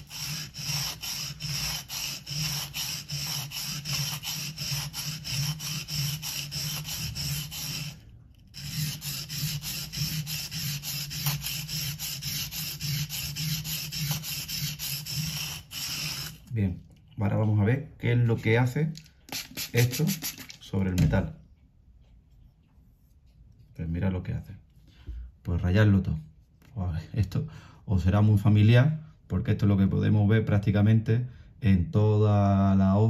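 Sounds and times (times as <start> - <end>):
knife blade scraping on whetstone: 0.0 - 16.4.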